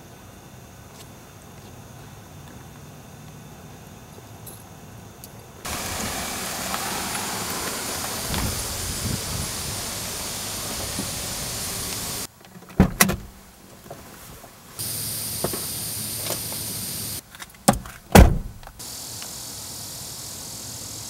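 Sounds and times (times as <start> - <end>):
car door shutting thump: 5.7 - 9.5, 12.8 - 13.4, 17.7 - 18.7
steady hiss: 5.7 - 17.2, 18.4 - 21.0
car door clicks and knocks: 12.8 - 13.4, 17.6 - 18.8.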